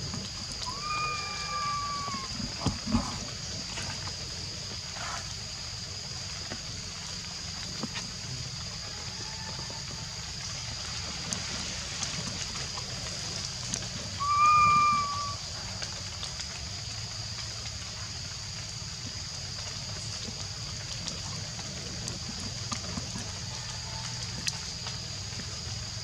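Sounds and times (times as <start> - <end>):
baby monkey cooing: 14.2 - 15.4
high-pitched hiss: 14.2 - 15.6.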